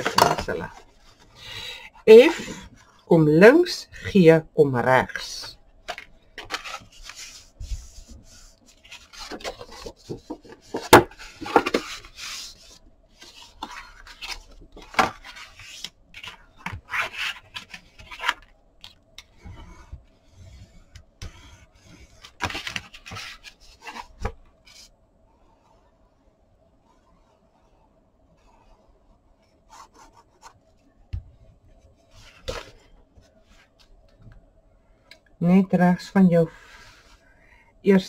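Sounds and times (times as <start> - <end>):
cardstock rustling and rubbing: 5.8 - 24.9, 31.7 - 33.9.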